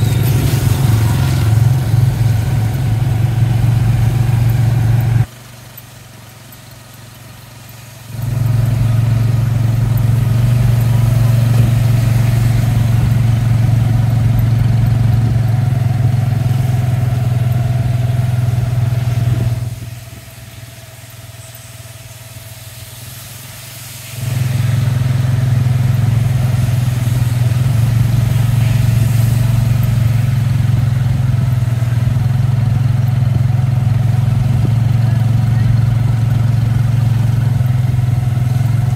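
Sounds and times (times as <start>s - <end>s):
motorcycle engine drone: 0.0s - 38.9s.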